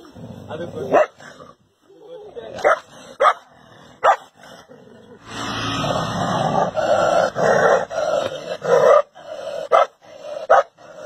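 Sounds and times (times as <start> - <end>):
dogs growling and snarling: 0.0 - 1.7, 2.5 - 11.0
dog barking: 0.9 - 1.2, 2.6 - 4.3, 9.7 - 10.7.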